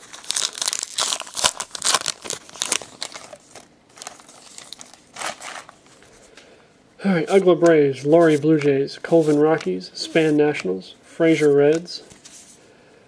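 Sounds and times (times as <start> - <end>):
wrapper crinkling and tearing: 0.0 - 5.8.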